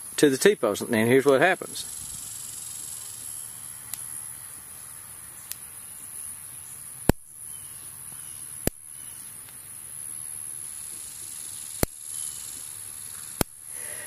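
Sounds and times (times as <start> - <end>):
electric fence snapping: 13.3 - 13.6.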